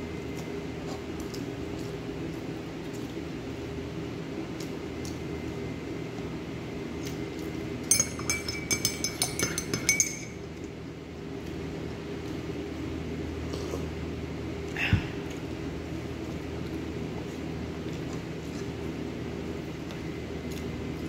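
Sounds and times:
steady low hum: 0.0 - 21.0
tableware clinking: 7.9 - 10.5.

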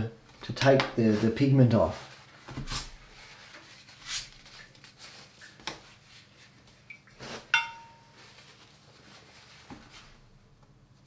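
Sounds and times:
soft scuffs of brushes: 1.0 - 10.2
sharp ringing clink: 7.6 - 8.2.

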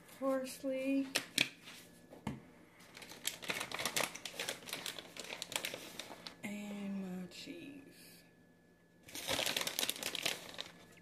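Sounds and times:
plastic bag crinkling: 2.8 - 6.4, 9.0 - 11.0.

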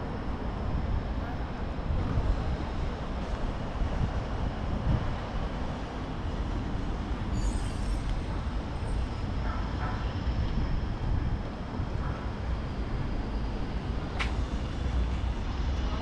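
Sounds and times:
traffic rumble: 0.0 - 16.0
high squeal: 7.3 - 9.0.

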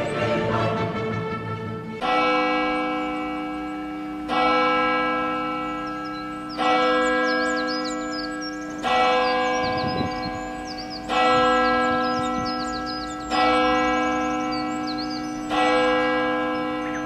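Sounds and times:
birds chirping faintly: 5.5 - 17.0.

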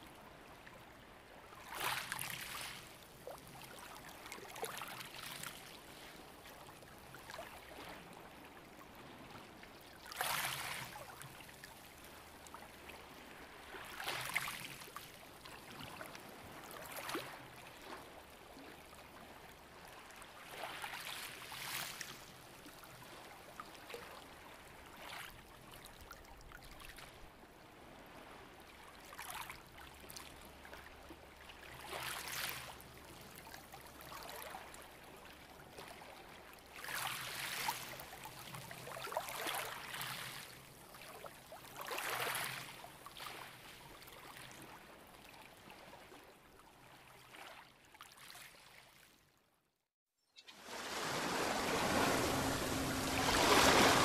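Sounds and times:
ocean waves washing in: 50.5 - 54.0.

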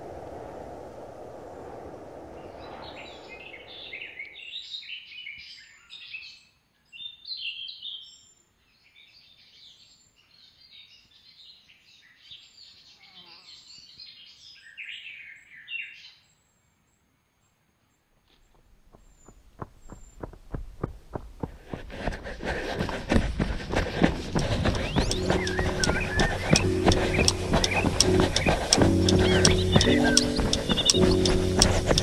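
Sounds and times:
low rushing noise: 0.0 - 4.4, 21.5 - 32.0
birds chirping and trilling: 2.4 - 16.7, 22.7 - 32.0.

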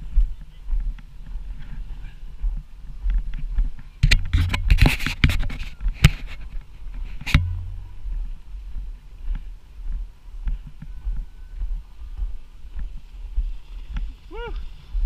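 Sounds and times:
sharp knocks: 7.2 - 8.1.

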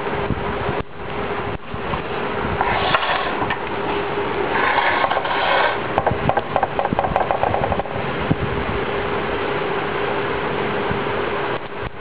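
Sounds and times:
steady mechanical hum: 0.0 - 12.0
scraping and rubbing: 2.6 - 3.7, 4.4 - 8.0
rapid clicks: 6.0 - 8.0.

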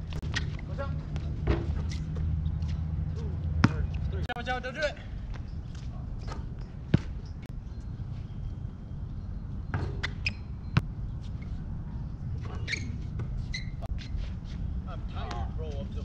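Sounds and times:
basketball bouncing on asphalt: 0.2 - 4.0, 6.4 - 7.3.

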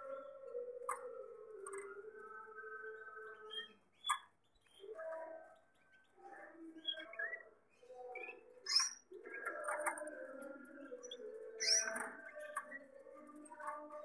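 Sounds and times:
canaries chirping: 0.0 - 14.0.

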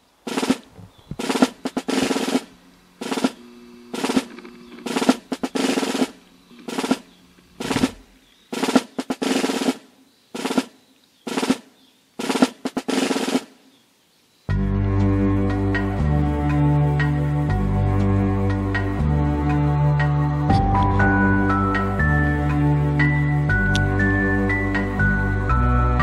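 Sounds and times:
drum loop music: 0.3 - 3.4, 4.9 - 8.0
low held notes: 14.6 - 26.0.

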